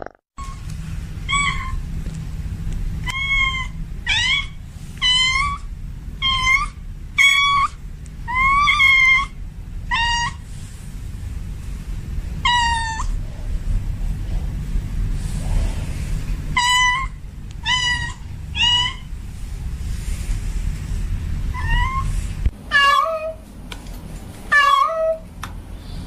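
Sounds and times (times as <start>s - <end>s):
cat meowing: 3.1s - 5.6s, 22.7s - 23.4s.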